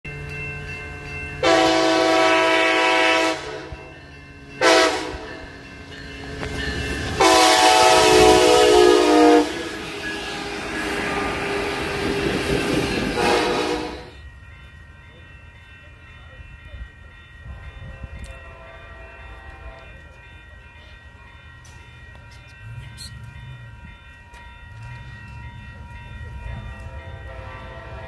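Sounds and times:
train rumbling over tracks: 0.1s - 28.0s
train air horn blasts: 1.4s - 3.8s, 4.6s - 5.3s, 7.2s - 11.8s, 13.0s - 14.2s, 18.0s - 20.0s, 26.8s - 28.0s.

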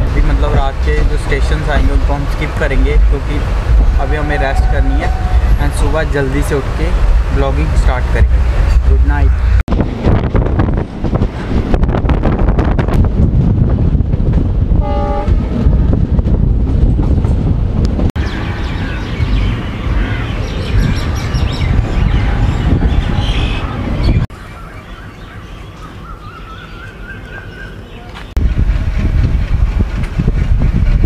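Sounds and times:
train rumble: 0.0s - 24.4s, 26.9s - 31.0s
wind on microphone: 2.9s - 24.3s, 28.4s - 31.0s
birds chirping: 18.2s - 28.4s.

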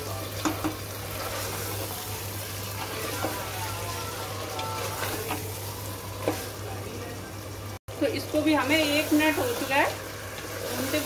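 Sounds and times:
meat sizzling in a pot: 0.0s - 11.0s
wooden spatula scraping a pot: 0.4s - 5.6s.

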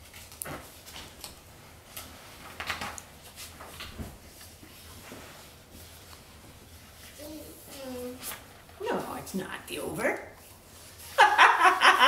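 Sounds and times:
picture book rustling and knocking: 0.0s - 8.5s.

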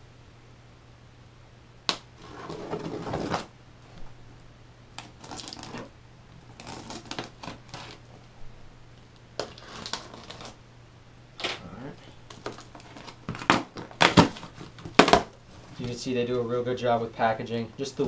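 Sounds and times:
packing tape being slit and torn: 5.0s - 8.1s, 9.4s - 10.6s, 12.3s - 15.4s.

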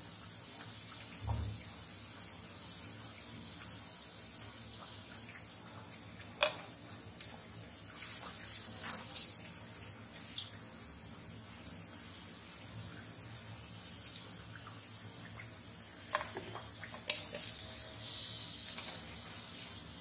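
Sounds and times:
deep-frying sizzle in oil: 0.0s - 20.0s
wire strainer tapping: 6.4s - 6.7s.

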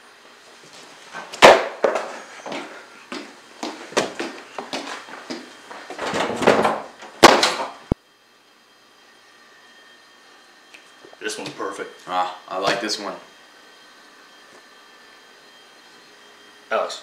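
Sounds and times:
footsteps on hard floor: 0.4s - 6.2s
door opening and banging: 6.0s - 7.8s.

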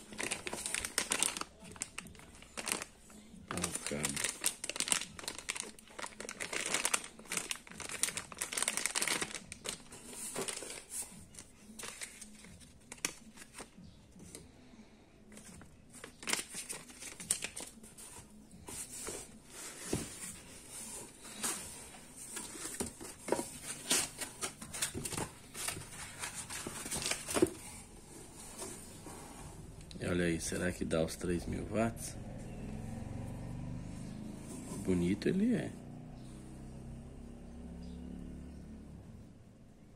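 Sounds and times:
plastic bag crinkling: 0.0s - 13.7s.

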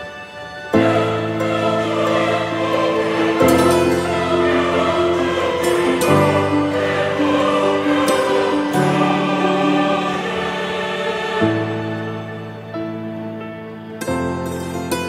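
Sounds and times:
choir singing held chords: 0.0s - 13.9s.

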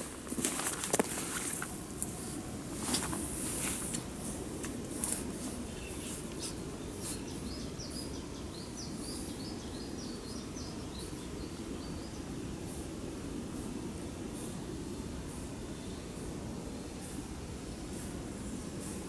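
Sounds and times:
low background rush: 0.0s - 19.0s
songbird chirping: 5.2s - 12.6s.

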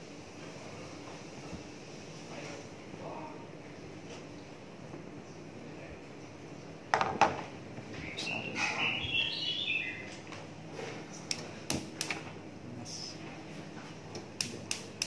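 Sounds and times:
high chirps: 8.0s - 10.1s
gas burner hissing: 14.1s - 15.0s.

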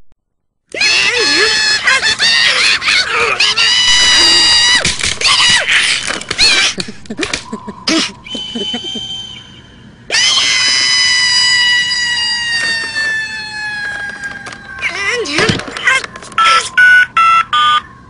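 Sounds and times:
high-pitched wail: 0.7s - 6.8s, 7.8s - 14.9s
squeaky cartoon voices squealing: 0.7s - 6.8s, 7.9s - 16.8s.

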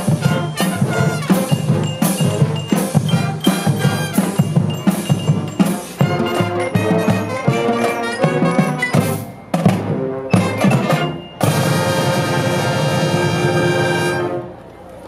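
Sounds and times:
marching band playing: 0.0s - 14.8s.

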